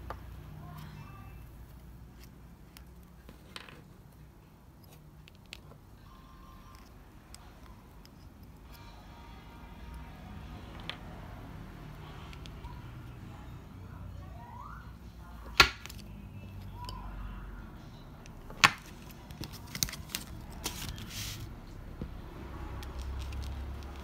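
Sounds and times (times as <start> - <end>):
paper rustle: 18.7 - 21.5.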